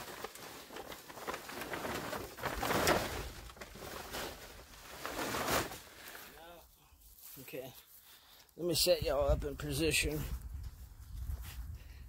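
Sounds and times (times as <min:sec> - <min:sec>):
plastic tarp rustling: 0:00.0 - 0:06.4.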